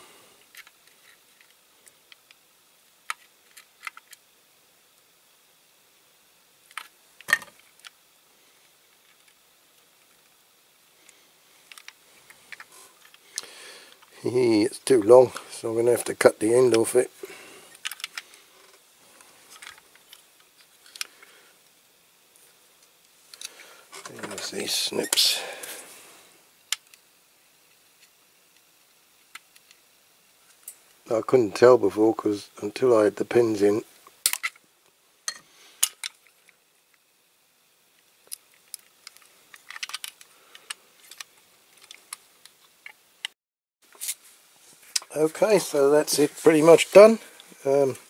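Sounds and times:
metal toy parts clicking: 0:38.3 - 0:42.0.

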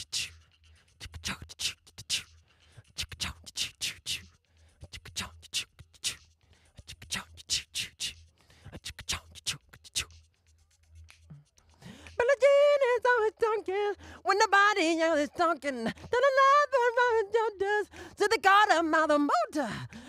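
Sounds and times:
vocal percussion clicks and hisses: 0:00.0 - 0:12.2.

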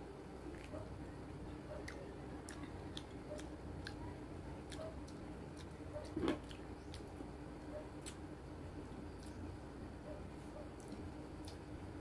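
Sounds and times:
low steady hum: 0:00.0 - 0:12.0
person chewing soft fruit: 0:01.8 - 0:04.0, 0:04.6 - 0:07.3, 0:08.0 - 0:09.7, 0:10.7 - 0:11.8.

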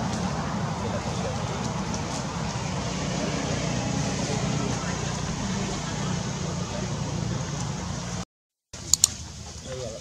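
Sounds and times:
low outdoor rumble: 0:00.0 - 0:08.2
sharp clicks: 0:08.9 - 0:09.2.

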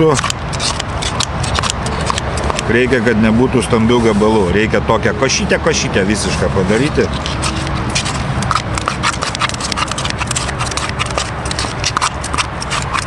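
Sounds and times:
scissors snipping: 0:00.0 - 0:02.8, 0:06.7 - 0:13.0.

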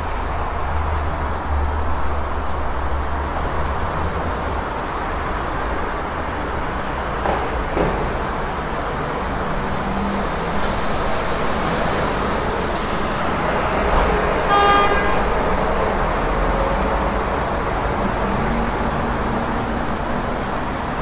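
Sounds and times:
city street traffic: 0:00.0 - 0:21.0
car horn honk: 0:14.5 - 0:15.4.

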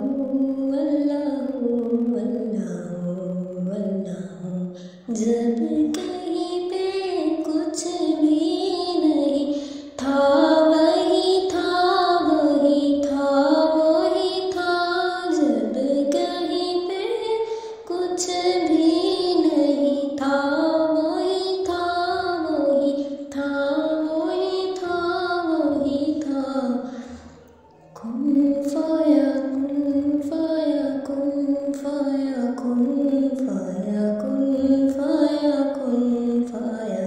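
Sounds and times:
high voice singing slowly: 0:00.0 - 0:37.0
singer breaths: 0:04.8 - 0:05.1, 0:09.5 - 0:10.0, 0:17.4 - 0:17.8, 0:26.8 - 0:27.6.

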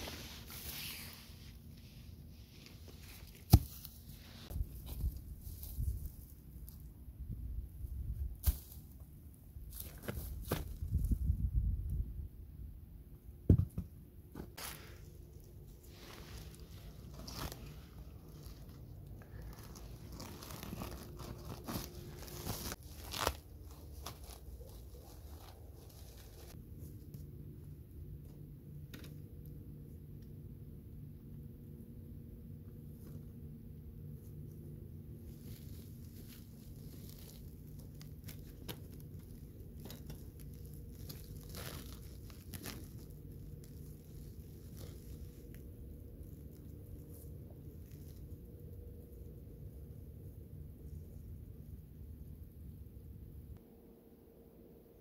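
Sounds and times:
plastic sack crinkling and rustling: 0:14.6 - 0:26.6, 0:35.3 - 0:48.4.

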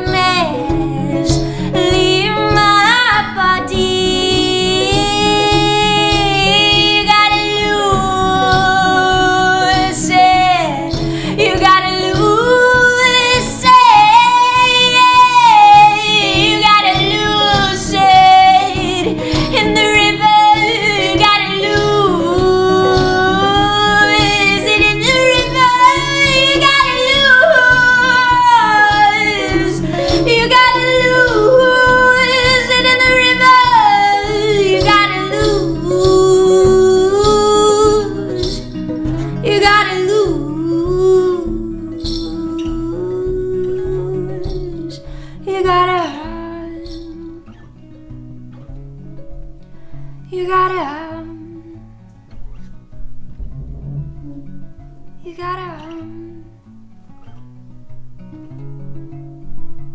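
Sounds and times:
woman singing: 0:00.0 - 0:47.9, 0:50.3 - 0:52.0, 0:54.1 - 0:56.8
strummed acoustic guitars: 0:00.0 - 0:59.9.

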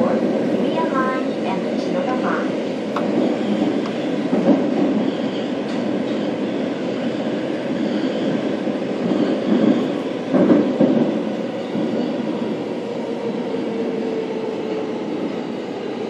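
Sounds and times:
train wheels rumbling on rail: 0:00.0 - 0:16.0
train wheel knocks: 0:09.5 - 0:11.2.

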